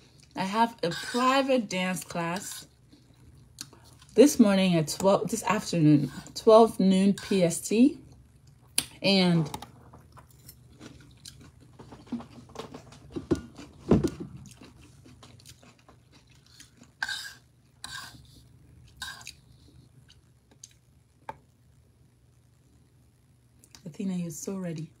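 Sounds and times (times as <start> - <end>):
fork scraping in a bowl: 0.9 - 1.4, 2.3 - 2.7, 17.0 - 18.4
mouth chewing: 14.4 - 18.2, 18.9 - 20.8.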